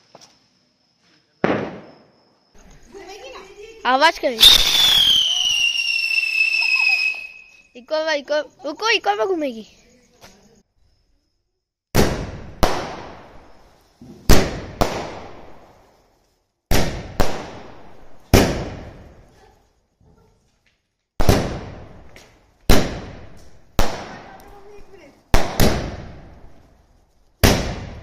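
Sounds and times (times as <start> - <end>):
fireworks bangs echoing: 1.4 - 2.1, 11.9 - 15.8, 16.7 - 19.3, 21.2 - 26.6, 27.4 - 28.0.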